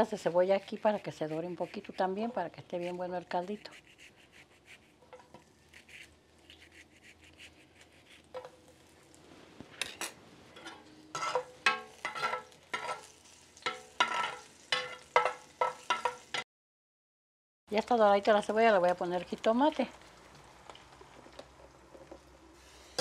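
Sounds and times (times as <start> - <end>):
spatula scraping pot: 9.8 - 13.1
onions sizzling in oil: 10.9 - 16.4.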